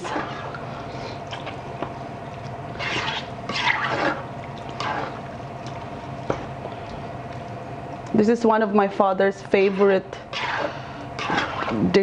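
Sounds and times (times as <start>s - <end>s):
spatula stirring thick stew: 0.0s - 1.0s, 2.7s - 5.2s, 9.5s - 11.9s.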